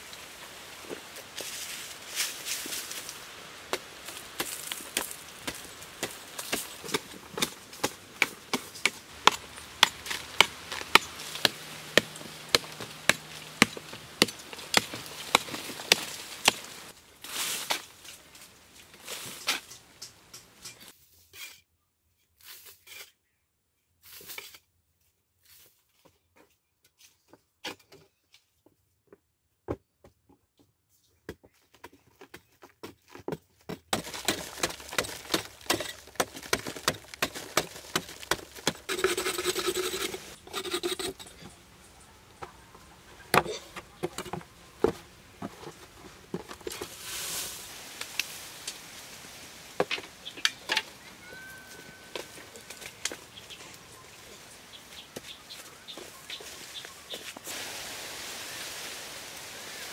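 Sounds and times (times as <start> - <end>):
loose soil falling: 0.8 - 19.7, 33.9 - 40.4, 43.2 - 53.8
hoe chopping dry earth: 3.7 - 16.9, 33.9 - 41.2.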